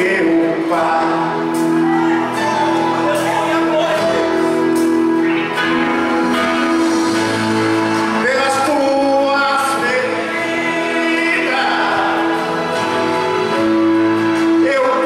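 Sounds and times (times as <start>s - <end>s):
man singing a hymn: 0.0s - 4.6s, 7.8s - 13.6s, 14.2s - 15.0s
instrumental accompaniment: 0.0s - 15.0s.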